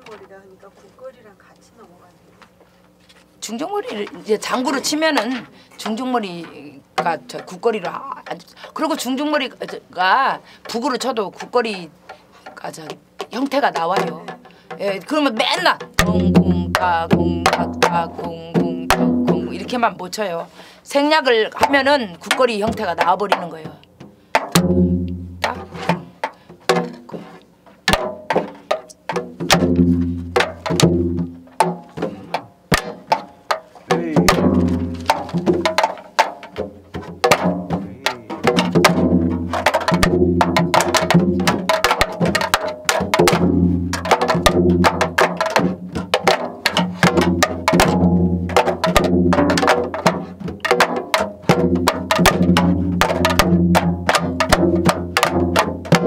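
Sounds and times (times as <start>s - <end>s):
sharp drum stick clicks: 27.4s - 29.6s
deep hourglass drum strokes: 33.9s - 35.8s.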